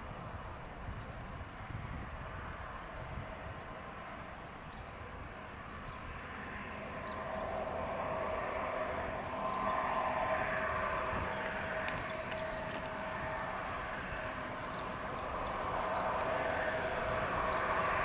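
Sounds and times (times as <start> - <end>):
diesel locomotive engine drone: 0.0 - 18.0
small birds chirping: 9.2 - 12.9.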